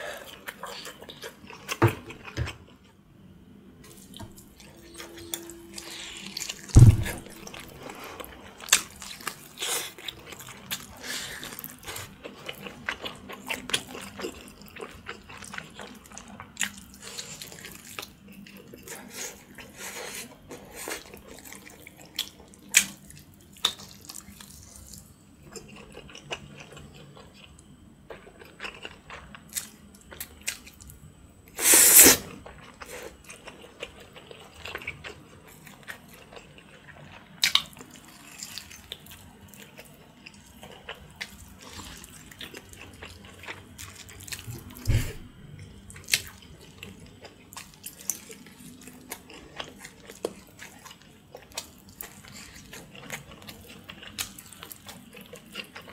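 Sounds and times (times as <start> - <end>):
sharp thump: 6.8 - 7.3.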